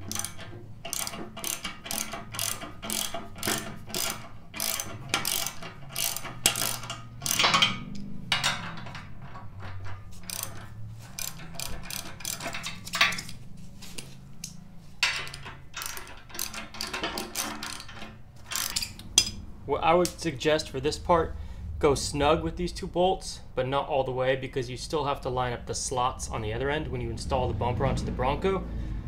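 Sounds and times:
ratchet wrench clicking: 0.0 - 13.4, 14.4 - 19.4.

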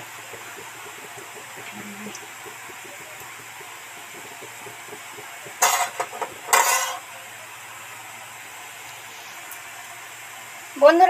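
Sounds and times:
batter dropping into hot oil: 0.0 - 7.2
oil sizzling: 0.0 - 11.0.

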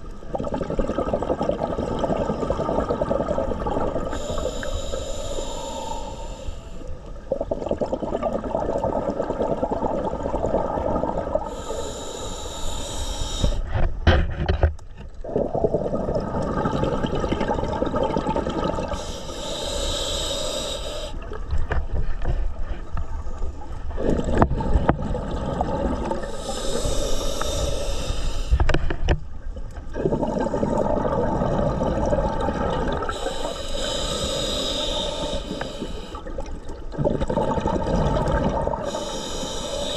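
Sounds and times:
exhaled bubbles rushing: 0.2 - 4.2, 7.2 - 11.5, 15.2 - 19.0, 23.8 - 27.0, 29.9 - 33.3, 35.0 - 39.1
hissing regulator inhale: 4.0 - 7.1, 11.3 - 13.8, 18.8 - 21.2, 26.1 - 29.0, 32.9 - 36.5, 38.3 - 39.9.

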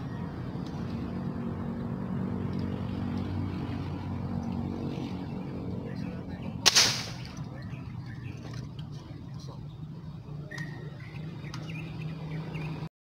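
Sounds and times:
steady engine hum: 0.0 - 12.9
airgun firing crack: 6.6 - 7.4.

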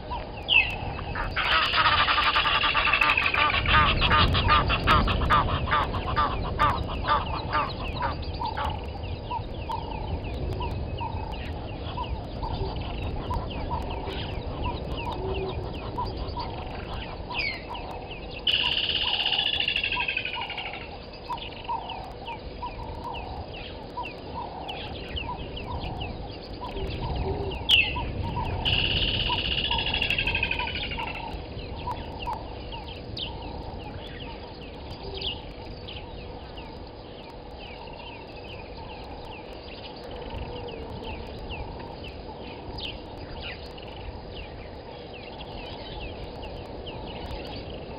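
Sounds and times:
birds chirping: 0.0 - 47.9
bird calls falling in pitch: 0.5 - 8.8.

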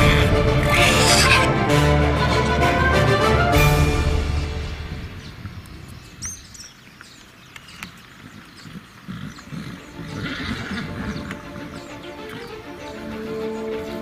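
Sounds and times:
music: 0.0 - 5.6, 9.9 - 14.0
bird chirp: 5.0 - 14.0.

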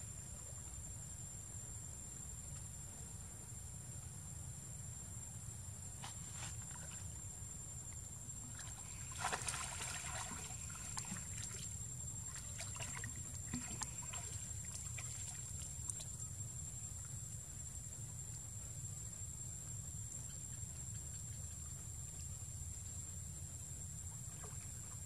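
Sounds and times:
monkeys splashing in water: 8.8 - 15.6.

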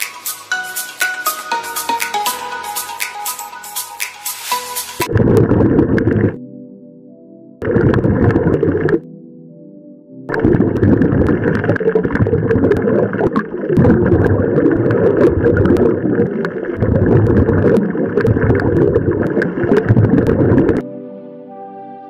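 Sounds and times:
underwater rush of water and bubbles: 5.0 - 6.4, 7.6 - 9.0, 10.3 - 20.8.

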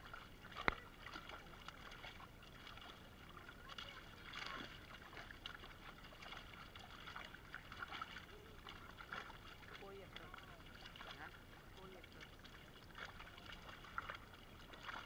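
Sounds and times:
fish splashing in shallow water: 0.0 - 15.0.

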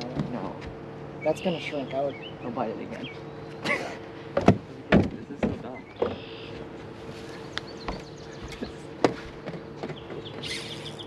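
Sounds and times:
electric trolling motor humming: 0.0 - 11.0.

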